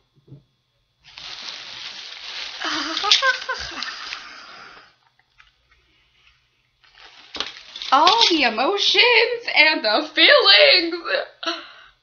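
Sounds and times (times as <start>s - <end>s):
clothes and wrapping rustling: 1.0s - 4.9s, 5.6s - 10.7s.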